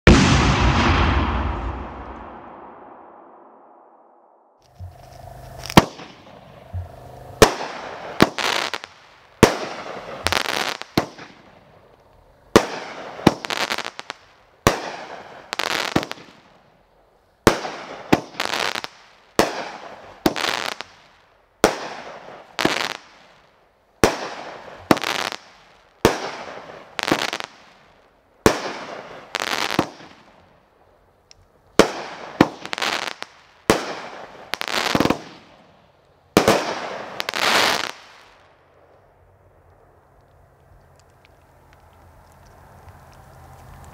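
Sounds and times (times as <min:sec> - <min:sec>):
firework launch thump: 0:00.1 - 0:03.3
firework aerial break crackling: 0:00.1 - 0:04.0, 0:04.6 - 0:16.6, 0:17.4 - 0:30.5, 0:31.8 - 0:35.7, 0:36.3 - 0:38.6.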